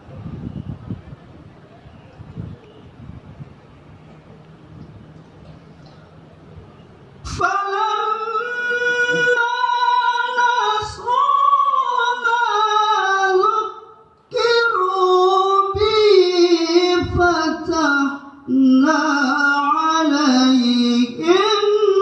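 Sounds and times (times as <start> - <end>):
man chanting melodically: 7.2 - 22.0.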